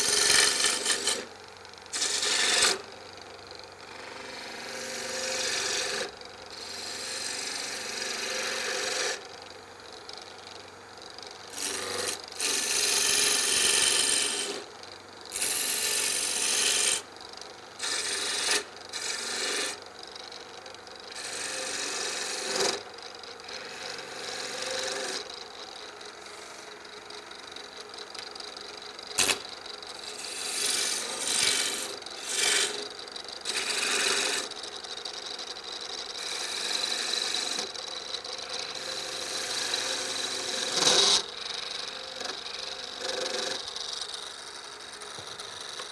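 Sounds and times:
lathe motor humming: 0.0s - 1.2s, 1.9s - 2.8s, 3.9s - 9.2s, 11.4s - 14.6s, 15.3s - 17.0s, 17.7s - 19.8s, 21.1s - 22.8s, 23.4s - 28.5s, 29.2s - 34.5s, 36.1s - 37.6s, 38.5s - 44.2s
lathe tool cutting wood: 0.0s - 1.2s, 1.9s - 2.8s, 4.0s - 9.2s, 11.5s - 14.6s, 15.3s - 17.0s, 17.8s - 19.8s, 21.1s - 22.8s, 23.4s - 25.3s, 30.0s - 34.5s, 36.2s - 37.6s, 38.5s - 44.2s.

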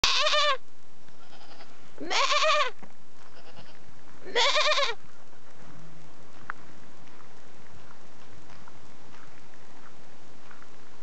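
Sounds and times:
goat bleating: 0.0s - 0.6s, 1.2s - 5.0s.

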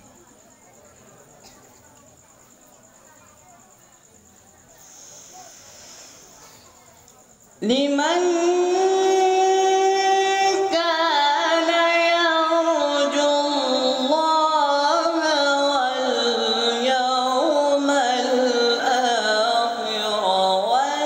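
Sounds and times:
boy reciting melodically: 7.6s - 21.0s.

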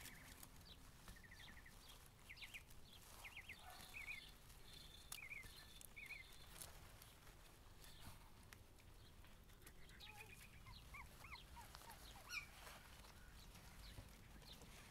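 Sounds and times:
puppies whimpering and squeaking: 9.7s - 14.9s.

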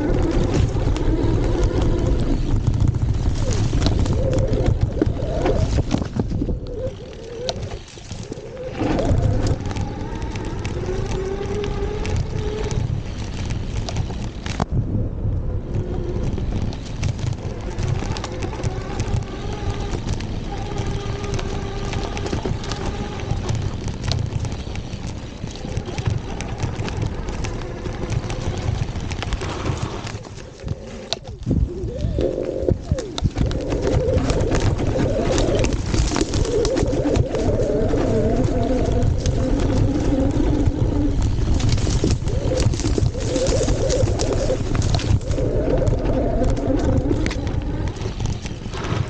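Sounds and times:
electric motor whine: 0.0s - 14.6s, 15.5s - 31.2s
tyres rumbling on dirt trail: 0.0s - 49.0s
wind buffeting microphone: 0.0s - 49.0s.

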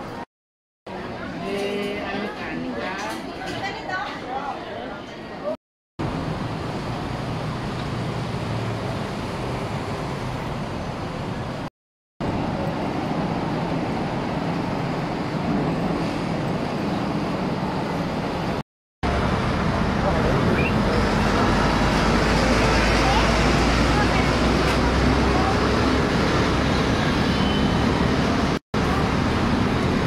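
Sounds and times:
cars passing on road: 6.0s - 30.0s.

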